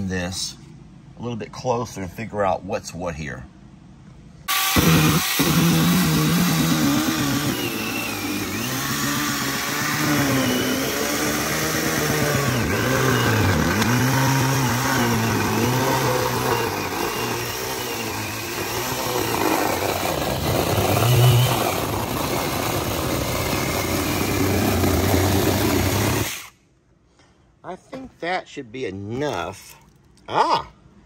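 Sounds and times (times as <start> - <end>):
electric chainsaw cutting cardboard: 4.5 - 26.6.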